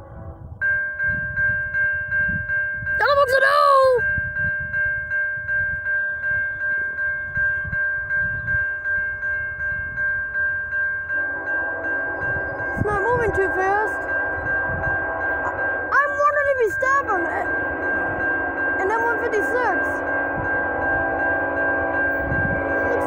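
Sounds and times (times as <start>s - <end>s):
railroad crossing bell ringing: 0.0s - 23.0s.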